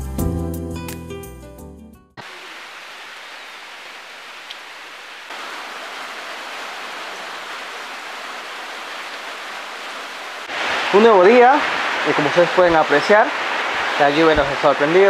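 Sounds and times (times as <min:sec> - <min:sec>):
soft music: 0:00.0 - 0:02.2
steady rain hissing: 0:02.2 - 0:15.0.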